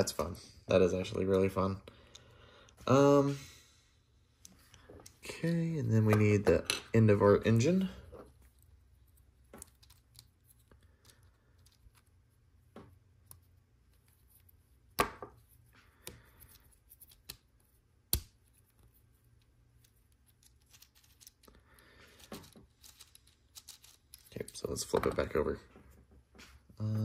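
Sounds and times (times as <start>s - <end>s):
plastic parts clicking and rustling: 19.4s - 25.4s.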